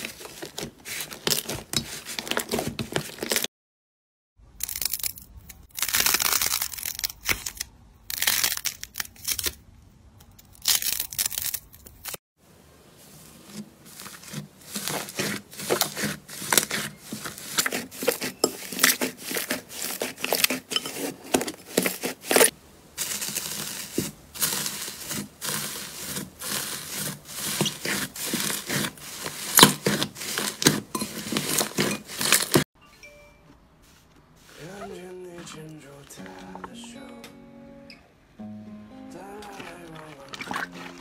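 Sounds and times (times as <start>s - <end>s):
foil slime crinkling: 0.0s - 3.5s, 4.7s - 9.6s, 13.0s - 32.6s, 39.3s - 41.0s
slime crackling and popping: 39.4s - 41.0s.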